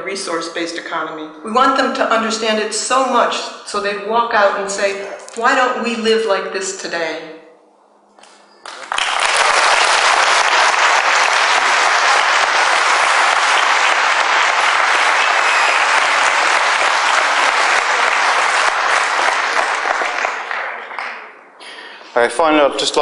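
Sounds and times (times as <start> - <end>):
audience applauding: 8.6 - 21.4.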